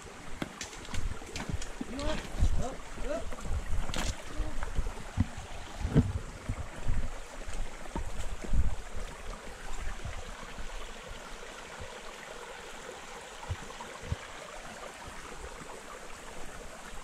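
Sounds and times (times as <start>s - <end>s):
brook trickling over stones: 0.0s - 17.0s
soft low thumps: 1.1s - 9.1s.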